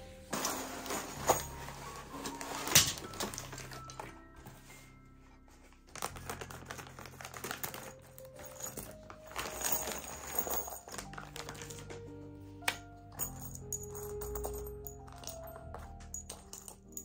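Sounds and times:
soft background music: 0:00.0 - 0:17.0
hardware rattling and clinking: 0:00.3 - 0:04.2, 0:06.0 - 0:12.1, 0:12.7 - 0:17.0
plastic bag crinkling: 0:05.9 - 0:12.0.

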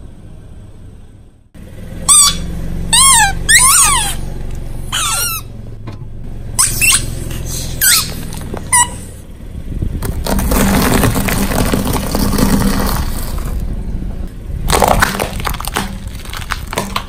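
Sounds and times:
car engine hum: 0:00.0 - 0:17.0
squeaky rubber toys squealing: 0:02.0 - 0:05.5, 0:06.6 - 0:09.2.

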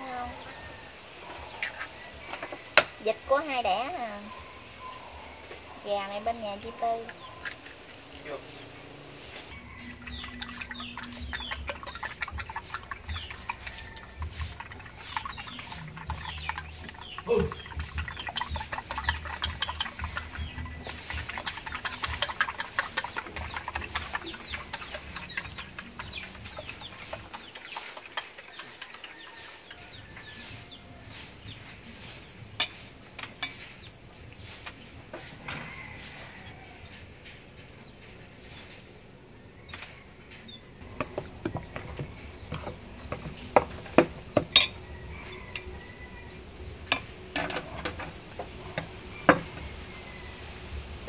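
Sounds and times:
hens clucking: 0:03.4 - 0:34.1.

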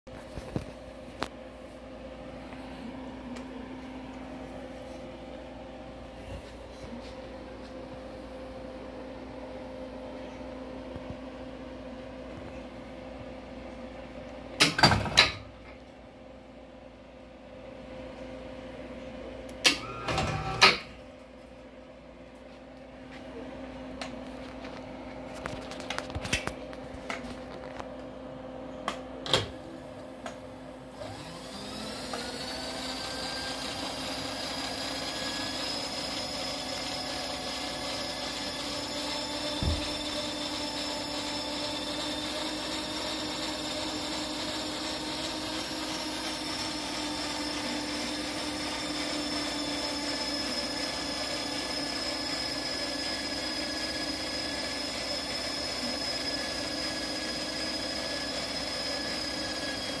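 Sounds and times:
electric winch motor whining: 0:19.7 - 0:20.8, 0:30.9 - 1:00.0.

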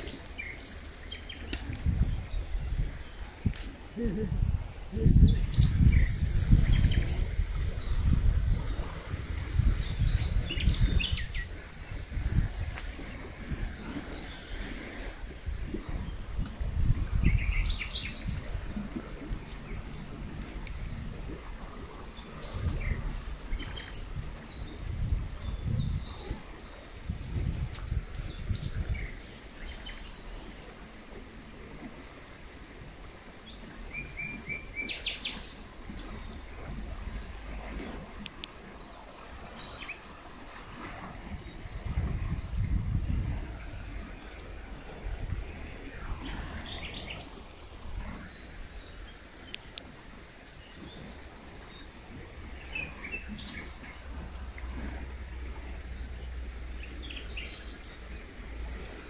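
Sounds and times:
low uneven rumble: 0:00.0 - 0:59.0
songbirds chirping and trilling: 0:00.0 - 0:59.0.

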